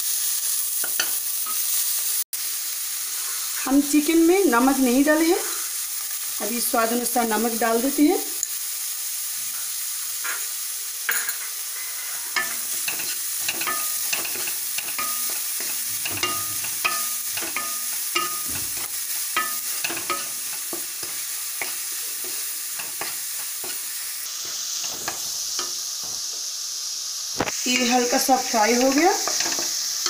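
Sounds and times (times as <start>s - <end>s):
vegetables sizzling in oil: 0.0s - 30.0s
wooden spatula scraping a pan: 11.3s - 26.3s.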